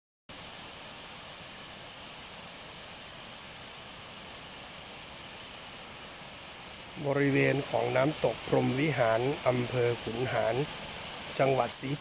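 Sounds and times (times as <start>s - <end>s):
small waterfall rushing: 0.3s - 12.0s.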